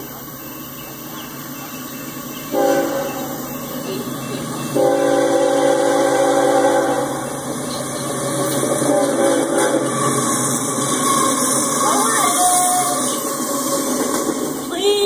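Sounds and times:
locomotive air horn blasts: 2.5s - 3.3s, 4.8s - 7.2s, 8.8s - 10.0s.

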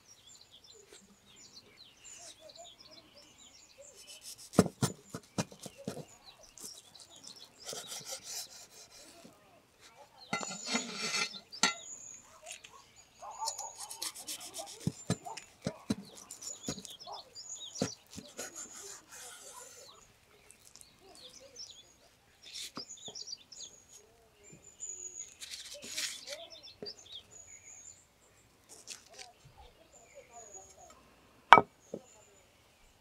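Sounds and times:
birds chirping: 0.0s - 8.9s, 9.5s - 33.0s
knife scraping on cutting board: 10.4s - 11.8s, 15.9s - 17.0s.

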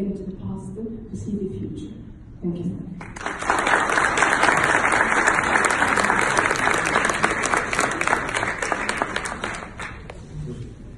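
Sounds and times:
audience applauding: 3.0s - 10.2s.

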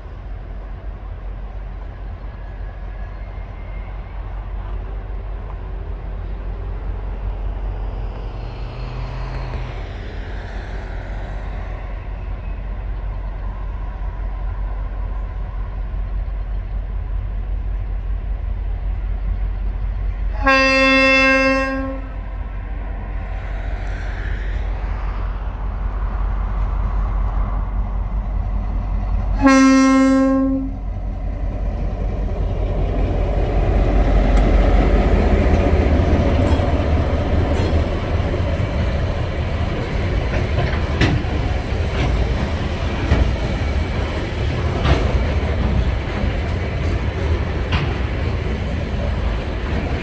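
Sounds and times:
diesel locomotive rumble: 0.0s - 50.0s
train horn blast: 20.3s - 22.3s, 29.3s - 30.8s.

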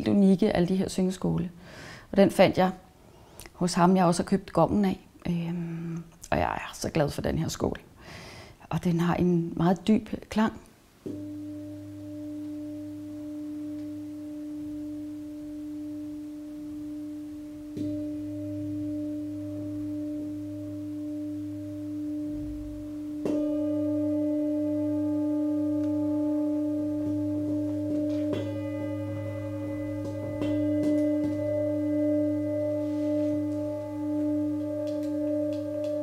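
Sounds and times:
singing bowl ringing: 11.1s - 36.0s.

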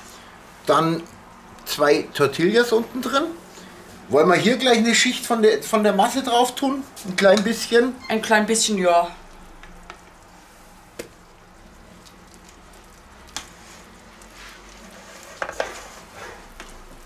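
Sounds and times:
spatula scraping a metal bowl: 13.6s - 16.8s.

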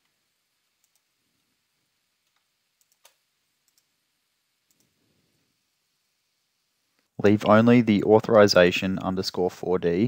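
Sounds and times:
computer mouse clicks: 0.8s - 1.1s, 2.2s - 3.9s, 4.7s - 5.0s.

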